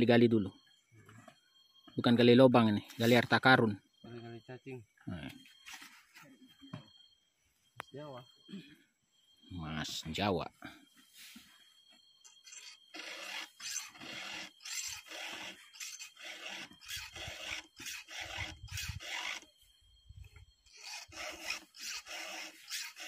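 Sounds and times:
file rasping on chain: 0:12.3 - 0:19.5, 0:20.7 - 0:23.0.

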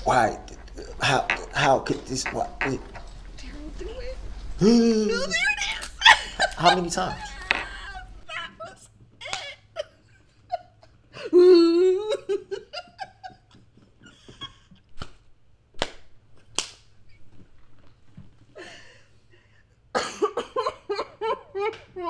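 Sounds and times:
sharp knocks: 0:00.5 - 0:03.5
woman laughing: 0:02.2 - 0:14.7, 0:20.4 - 0:22.0.

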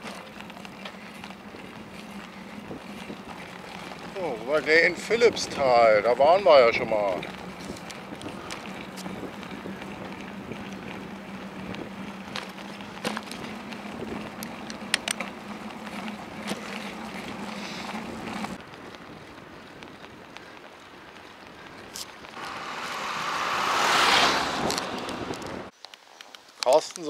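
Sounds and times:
low hum: 0:00.0 - 0:18.7, 0:22.3 - 0:25.7
bicycle clicks and rattles: 0:00.0 - 0:22.4, 0:24.6 - 0:27.0
bicycle tyres rolling on asphalt: 0:00.0 - 0:27.0.

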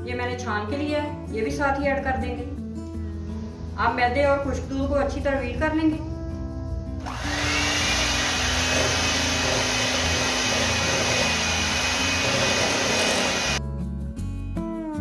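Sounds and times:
electric hand mixer running: 0:07.0 - 0:13.6.

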